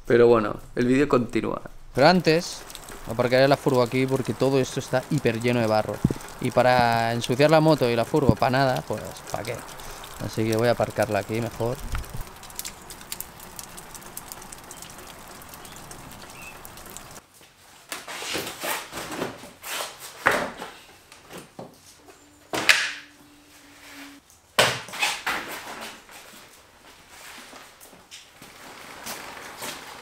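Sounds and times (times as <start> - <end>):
rain hissing: 1.6 - 17.2
steady hum: 22.0 - 24.2.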